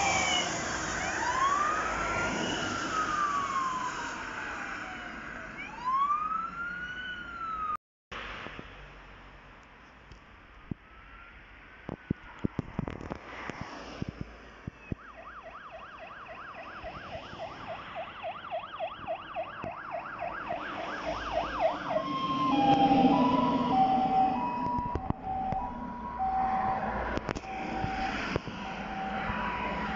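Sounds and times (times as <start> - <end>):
fire engine siren: 0.0 - 7.8, 14.8 - 29.9
truck engine and tyres: 0.0 - 29.9.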